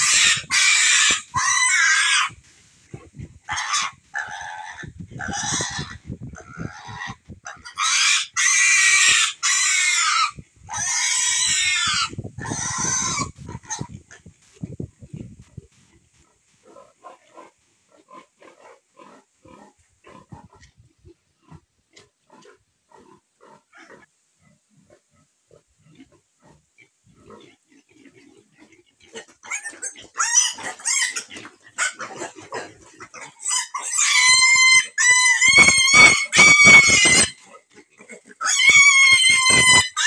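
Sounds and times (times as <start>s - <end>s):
piglet squealing: 0.0s - 2.4s, 3.5s - 13.9s, 29.4s - 37.5s, 38.3s - 40.0s
piglets grunting: 0.0s - 14.3s, 25.5s - 40.0s.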